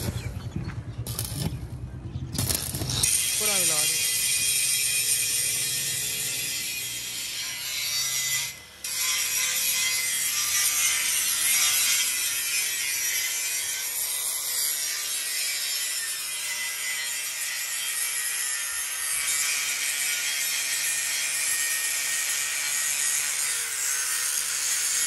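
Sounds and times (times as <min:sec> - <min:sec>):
arc welding crackle: 0:01.0 - 0:01.6, 0:02.3 - 0:12.9
angle grinder cutting steel: 0:02.4 - 0:25.0.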